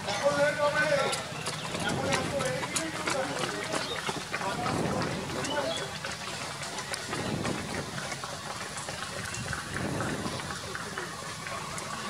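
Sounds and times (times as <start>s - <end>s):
crackling hiss of street noise: 2.9s - 12.0s.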